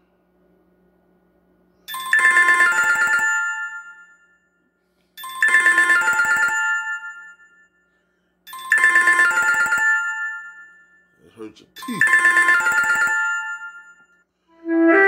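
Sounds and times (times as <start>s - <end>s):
phone ringtone chiming melody: 1.9s - 4.6s, 5.2s - 7.9s, 8.5s - 11.2s, 11.8s - 14.2s.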